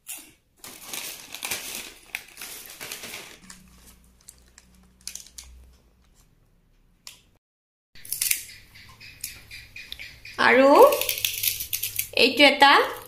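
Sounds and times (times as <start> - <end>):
plastic packets crinkling: 0.1 - 5.6.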